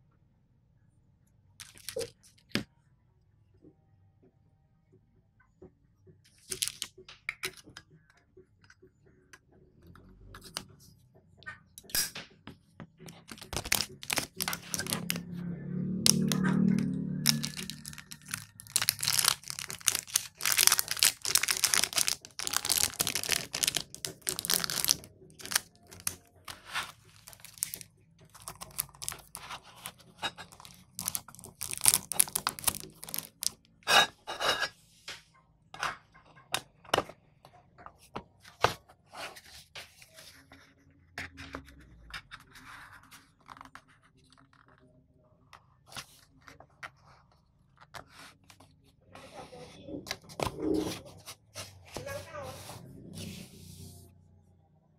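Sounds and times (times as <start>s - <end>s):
plastic wrapping crinkling: 13.1s - 15.2s, 17.2s - 26.2s, 26.8s - 33.6s.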